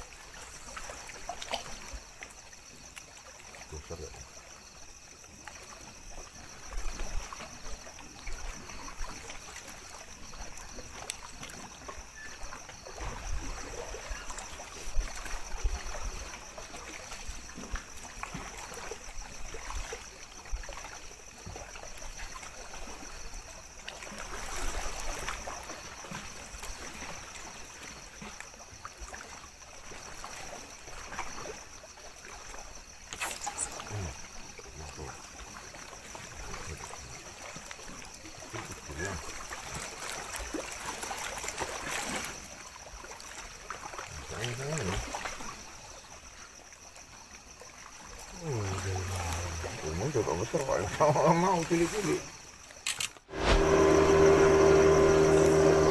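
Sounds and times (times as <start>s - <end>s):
water lapping against rocky shore: 0.0s - 55.9s.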